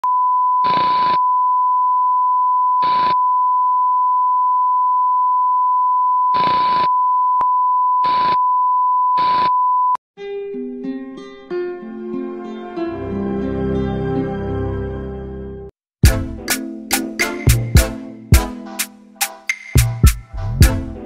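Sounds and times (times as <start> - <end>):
plucked guitar music: 10.2 - 14.4.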